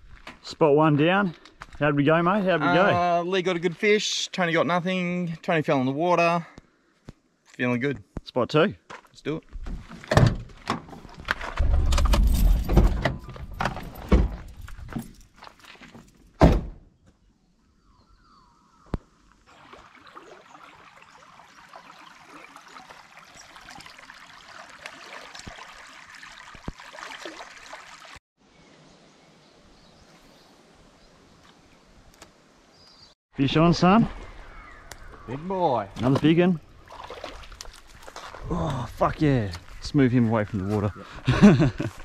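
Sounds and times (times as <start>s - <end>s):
car door slamming: 16.4s - 16.8s.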